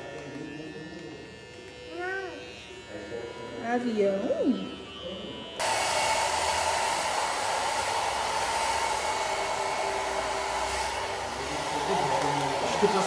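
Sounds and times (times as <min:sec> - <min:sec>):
hair dryer running: 0:05.6 - 0:13.0.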